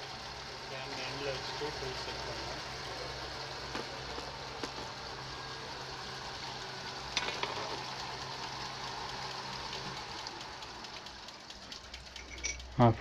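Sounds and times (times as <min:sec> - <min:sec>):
coolant hissing and splashing: 0:00.0 - 0:13.0
lathe motor hum: 0:00.0 - 0:13.0
metallic clatter: 0:07.1 - 0:07.8, 0:11.4 - 0:13.0.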